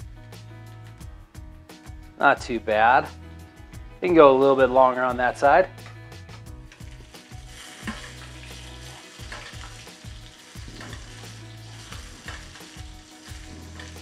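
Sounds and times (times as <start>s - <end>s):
butter sizzling in a pan: 6.7s - 14.0s
metal spoon scraping a pan: 6.7s - 14.0s.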